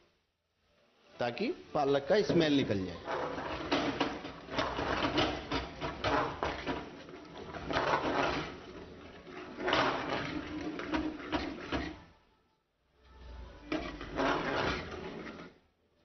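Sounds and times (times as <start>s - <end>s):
metal spoon scraping a pan: 2.6s - 12.1s, 13.6s - 15.6s.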